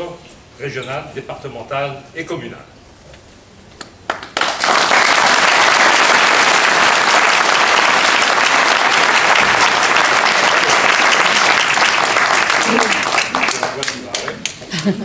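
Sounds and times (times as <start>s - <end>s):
single claps: 3.8s - 14.7s
audience applause: 4.1s - 14.6s.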